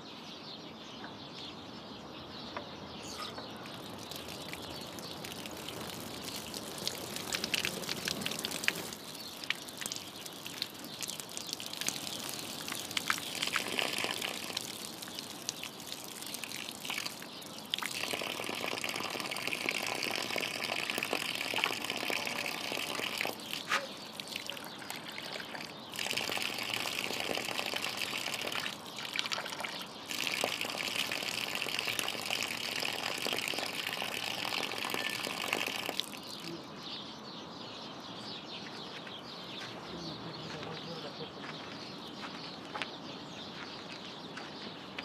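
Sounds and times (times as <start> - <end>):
tap water splashing on ground: 3.6 - 36.5.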